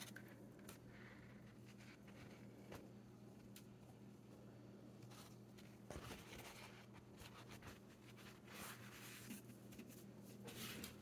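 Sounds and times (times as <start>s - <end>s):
low steady hum: 0.0s - 11.0s
paper towel rustling: 5.0s - 11.0s.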